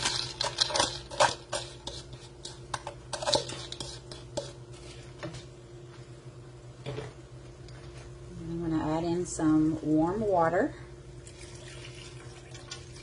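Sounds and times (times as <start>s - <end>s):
corn kernels clattering into pot: 0.0s - 4.4s
wooden spoon knocking and scraping: 0.0s - 5.5s.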